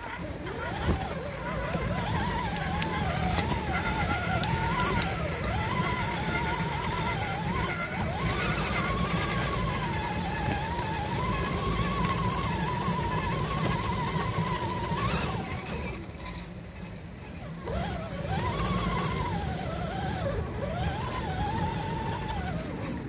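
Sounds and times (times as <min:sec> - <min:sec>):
electric motor whine: 0:00.0 - 0:23.0
tyres rolling on gravel: 0:00.0 - 0:23.0.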